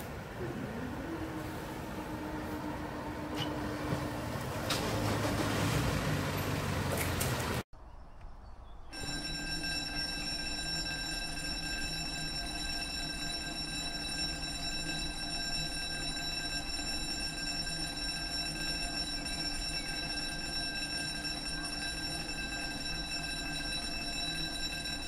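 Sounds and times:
level crossing alarm tone: 0.4 - 5.8, 8.9 - 25.0.

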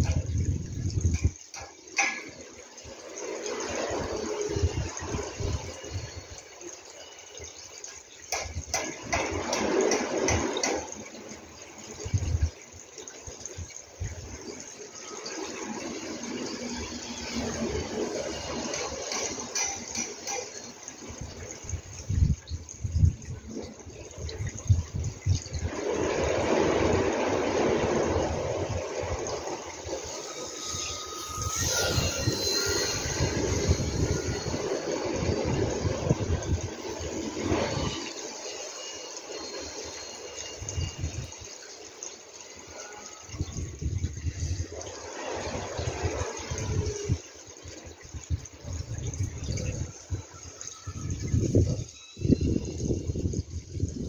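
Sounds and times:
wind buffeting microphone: 0.0 - 1.7, 3.5 - 6.4, 8.4 - 14.6, 20.9 - 38.2, 40.6 - 41.5, 43.3 - 54.0.

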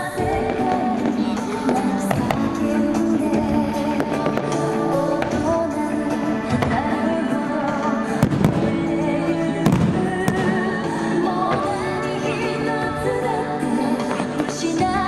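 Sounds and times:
pop song with singing: 0.0 - 15.0
fireworks bangs: 8.0 - 11.8.

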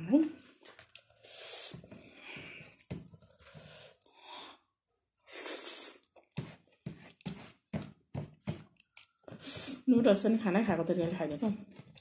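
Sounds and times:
person chewing: 0.4 - 4.2, 8.7 - 9.8.

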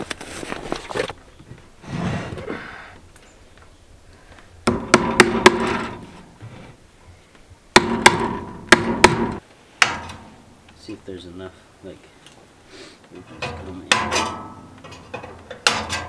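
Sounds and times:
hammer striking wood: 4.6 - 6.0, 7.7 - 10.1.

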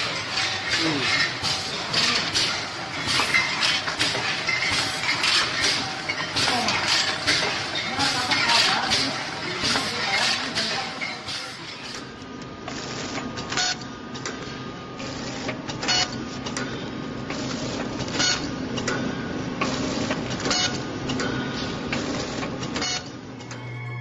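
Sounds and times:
machine clacking: 0.0 - 12.2
packing machine humming: 0.0 - 24.0.

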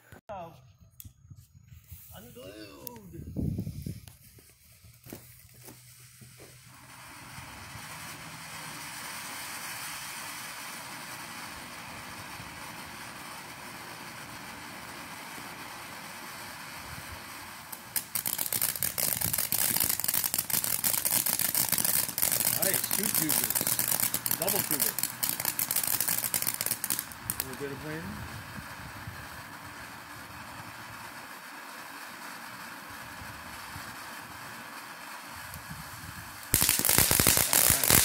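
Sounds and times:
firework crackling: 1.8 - 38.0
firework fountain hissing: 1.8 - 38.0.

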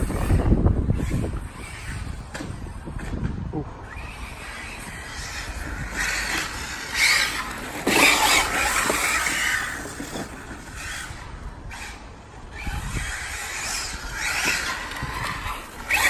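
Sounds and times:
electric toy car motor whine: 0.0 - 3.1, 3.8 - 16.0
tyre noise on tarmac: 0.0 - 11.9.

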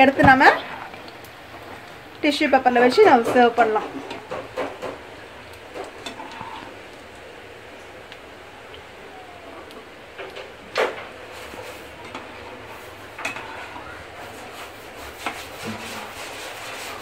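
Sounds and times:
frying oil hiss: 9.0 - 17.0.

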